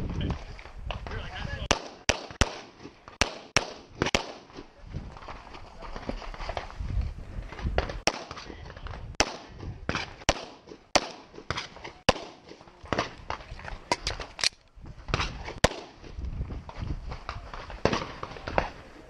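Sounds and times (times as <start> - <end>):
pistol shots: 1.7 - 4.6, 8.0 - 8.4, 9.2 - 13.2, 15.6 - 16.0.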